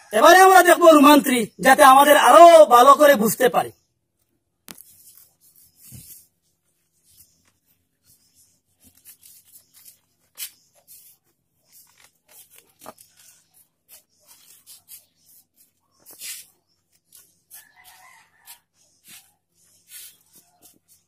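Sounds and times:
eraser rubbing on whiteboard: 0:08.1 - 0:21.0.

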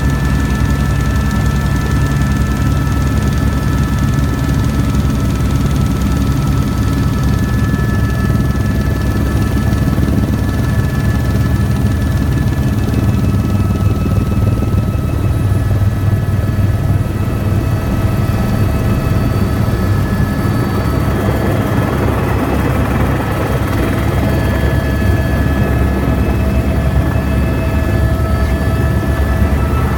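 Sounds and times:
helicopter rotor beat: 0:00.0 - 0:29.9
turbine whine: 0:03.2 - 0:29.9.

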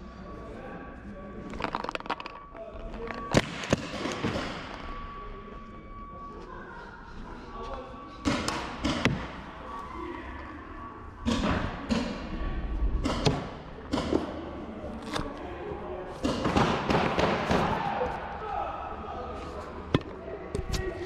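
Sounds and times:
paintballs hitting: 0:01.5 - 0:04.9.

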